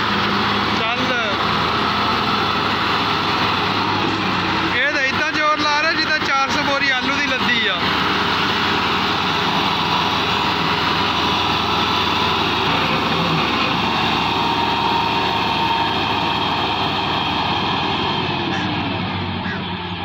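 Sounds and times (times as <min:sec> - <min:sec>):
tractor diesel engine under load: 0:00.0 - 0:20.0.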